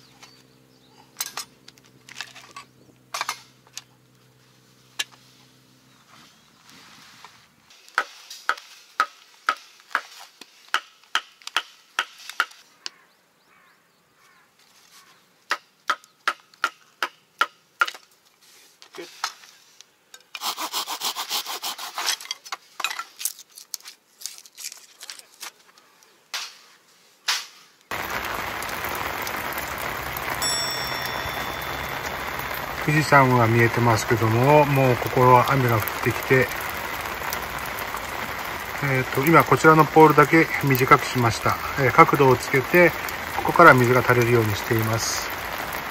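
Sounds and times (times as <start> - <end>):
steady rain: 27.9 - 45.9.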